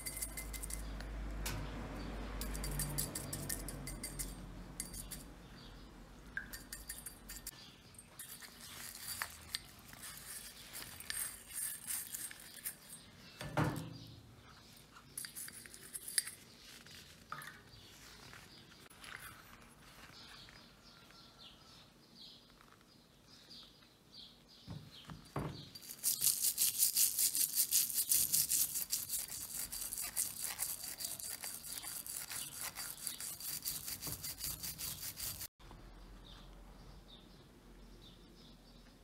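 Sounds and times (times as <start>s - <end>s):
brush scrubbing wet metal: 25.8s - 35.5s.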